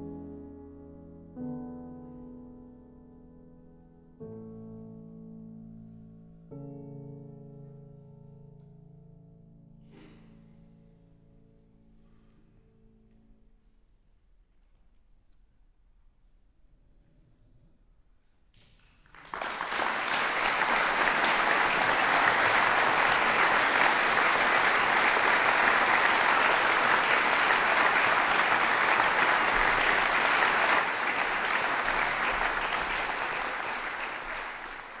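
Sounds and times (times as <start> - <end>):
audience applauding: 19.0 - 35.0.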